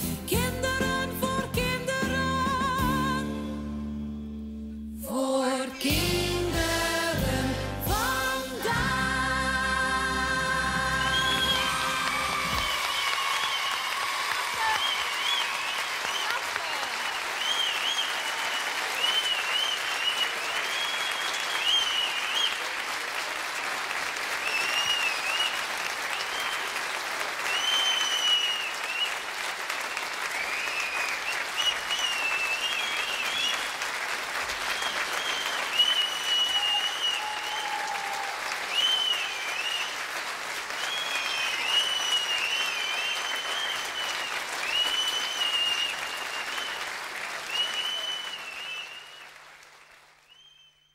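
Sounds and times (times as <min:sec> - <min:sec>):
audience applauding: 0:08.3 - 0:50.9.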